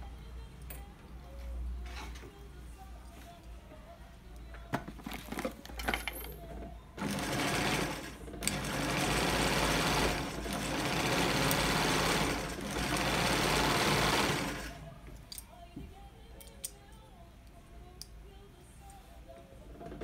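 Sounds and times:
sewing machine running: 7.0s - 14.8s.

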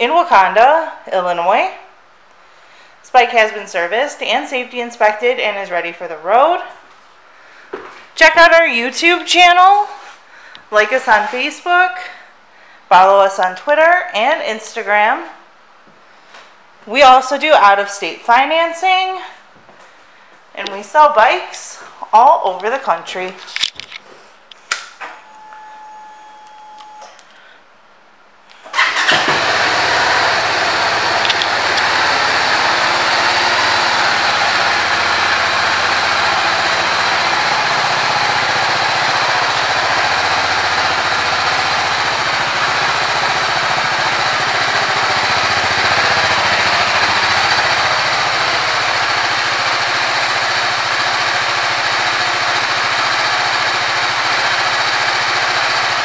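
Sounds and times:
brief steady tone: 25.2s - 27.2s
motorcycle engine starting and idling: 28.6s - 56.0s
ignition clicks: 31.2s - 32.0s.

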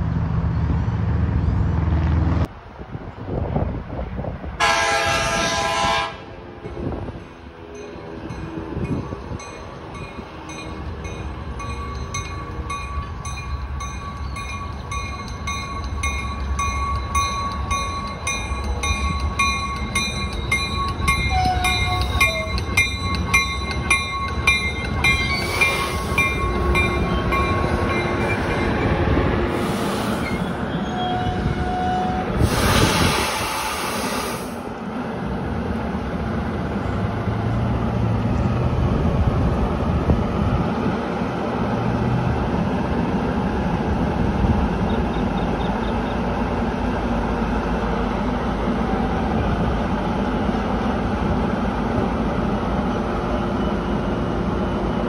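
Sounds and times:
train rumble: 0.0s - 55.0s
bell ringing: 7.8s - 29.0s
air hiss blasts: 29.5s - 30.4s, 32.4s - 34.7s.

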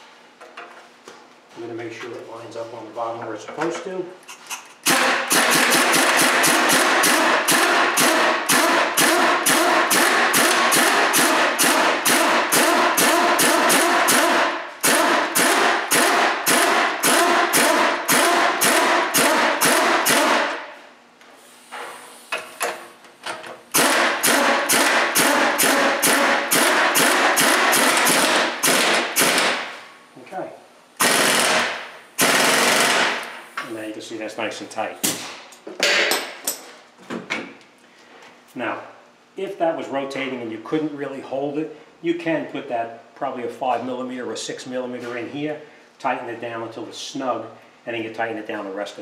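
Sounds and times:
pneumatic impact wrench hammering: 4.4s - 20.7s, 21.6s - 29.8s, 31.0s - 33.7s.

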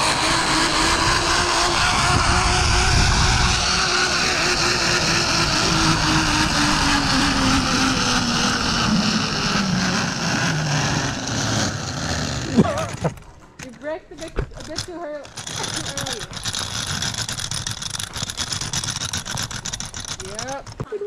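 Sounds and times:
wind noise on microphone: 0.0s - 11.6s
zipline pulleys whirring: 0.0s - 21.0s.

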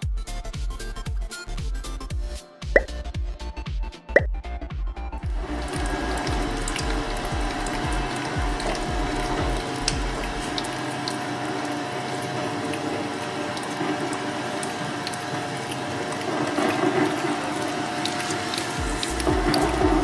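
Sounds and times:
shredder machine hum: 5.2s - 20.0s.

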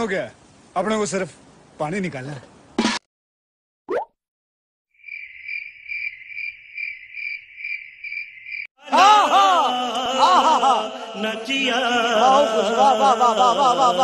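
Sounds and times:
cricket chirping: 4.9s - 8.7s.

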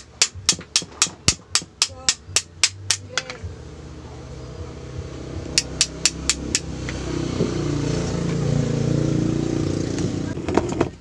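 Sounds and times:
small hammer tapping metal: 0.0s - 3.4s, 5.6s - 6.7s
vehicle engine in background: 2.6s - 11.0s.

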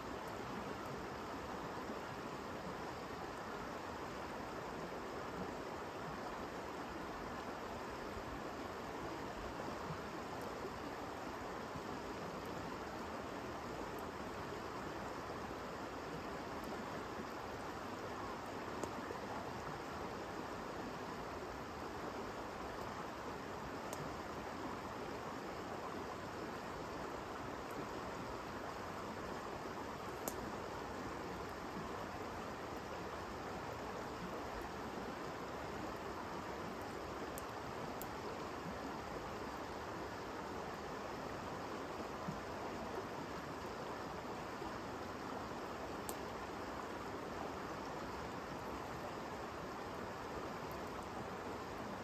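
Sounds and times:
faint clicks: 18.8s - 19.0s, 23.9s - 24.1s, 30.1s - 30.5s, 46.0s - 46.3s.

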